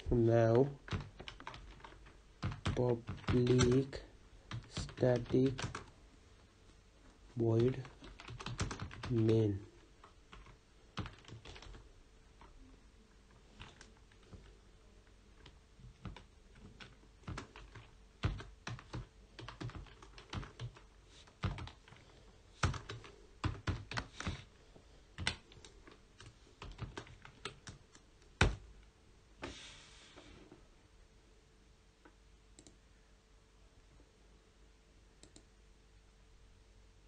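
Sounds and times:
typing on computer keyboard: 0.8 - 5.9, 7.5 - 9.3, 10.0 - 11.8, 13.6 - 14.5, 15.4 - 22.0, 22.6 - 24.5, 25.2 - 28.6.

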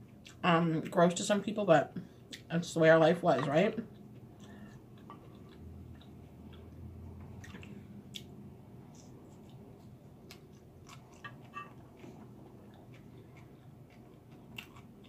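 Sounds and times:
person chewing: 3.9 - 6.8, 7.4 - 15.0.

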